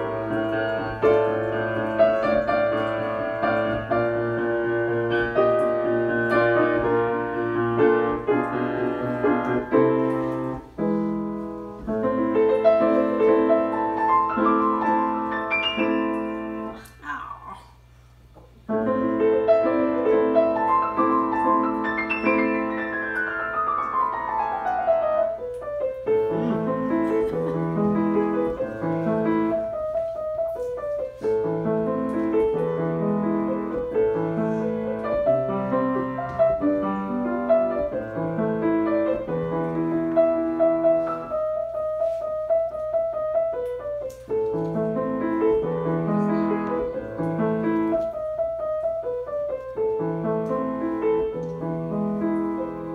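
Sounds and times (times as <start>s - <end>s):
grand piano playing: 0.0s - 16.9s, 18.6s - 52.9s.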